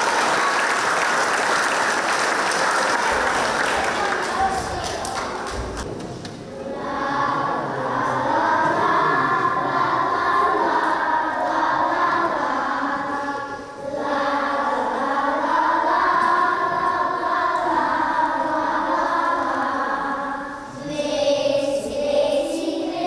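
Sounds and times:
children's choir singing: 0.0 - 23.0.

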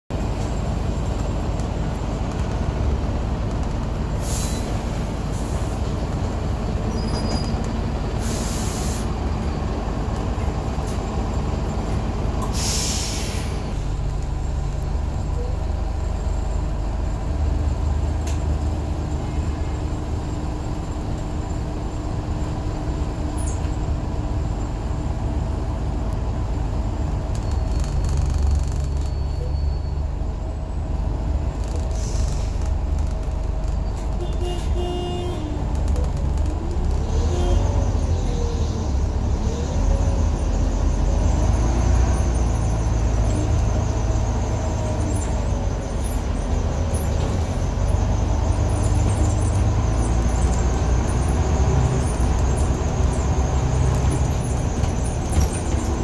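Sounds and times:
bus diesel engine droning: 0.1 - 56.0
compressed air hisses: 12.6 - 13.6.

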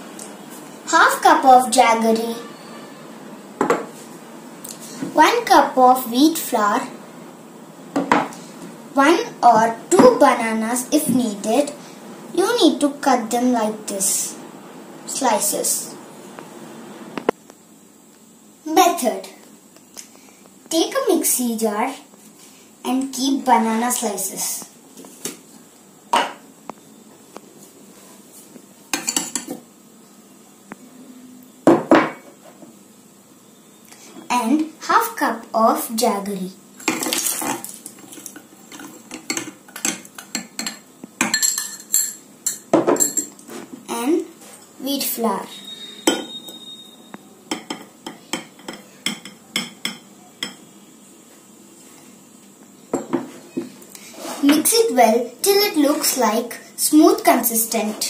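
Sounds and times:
glass bowl clinking on steel jar: 40.6 - 43.4, 45.9 - 46.6.

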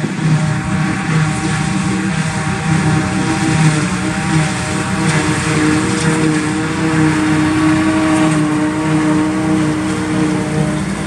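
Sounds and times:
forage harvester drone: 0.0 - 11.0
truck engine running: 0.0 - 11.0.

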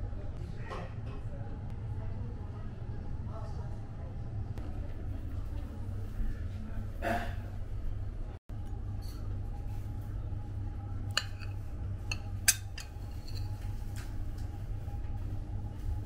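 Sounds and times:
steady low hum: 0.0 - 16.0
metal spoon clinking on plate: 11.1 - 13.5.

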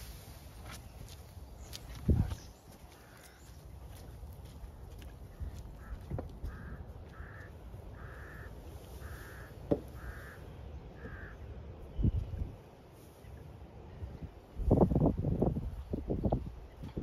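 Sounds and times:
crow cawing: 3.0 - 3.5, 5.4 - 11.4
low wind rumble: 4.7 - 17.0.

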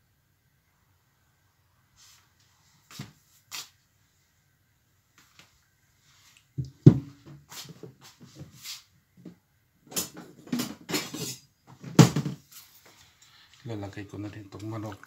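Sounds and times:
knocks in kitchen: 6.6 - 7.2, 11.9 - 12.4.

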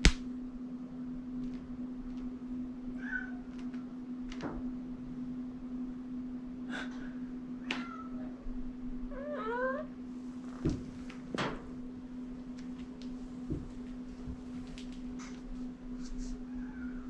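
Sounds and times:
steady low hum: 0.0 - 17.0
kitten meowing: 3.0 - 3.4, 9.1 - 9.9.

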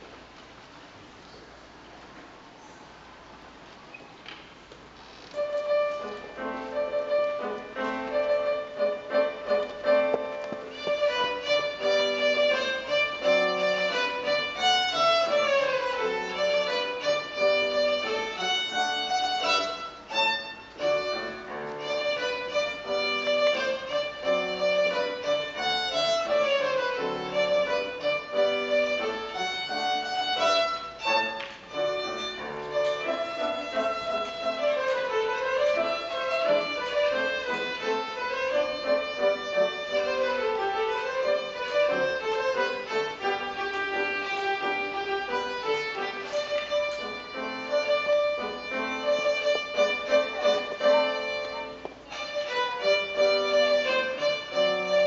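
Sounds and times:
child playing violin: 5.3 - 55.0
piano accompaniment: 5.3 - 55.0.

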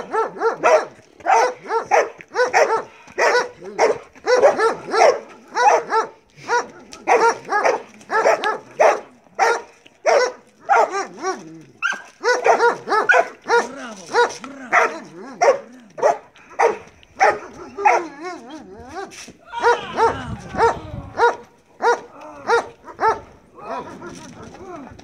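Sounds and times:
dog barking sharply: 0.0 - 11.0, 11.8 - 18.0.

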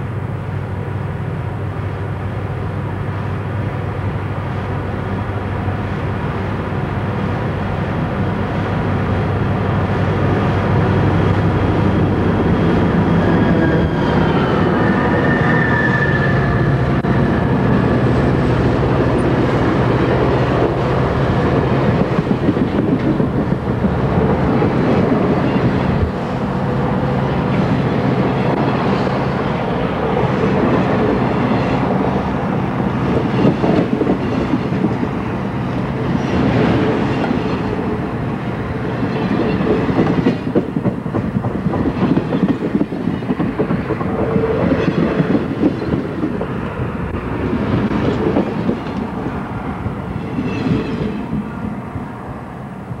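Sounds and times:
diesel locomotive engines droning: 0.0 - 53.0
train wheels rumbling: 0.0 - 53.0
clickety-clack over rail joints: 18.6 - 26.3, 33.0 - 38.1, 38.8 - 51.5.

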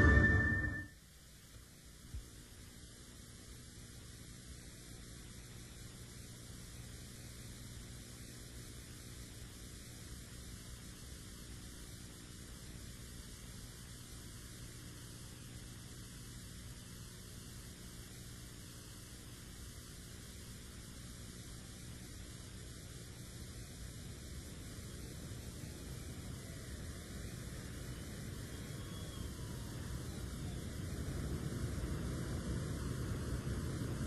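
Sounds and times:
low hum: 0.0 - 0.9
faint steady hiss: 0.0 - 34.0.

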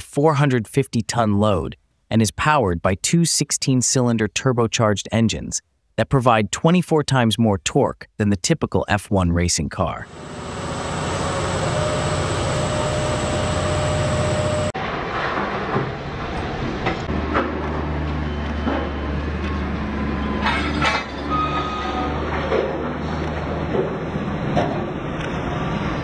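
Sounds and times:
heavy engine drone: 10.0 - 26.0
dump truck engine rumble: 10.1 - 14.8.

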